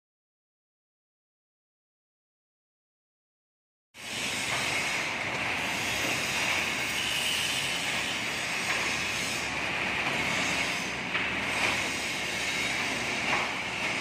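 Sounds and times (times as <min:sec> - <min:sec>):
concrete mixer running: 0:04.0 - 0:14.0.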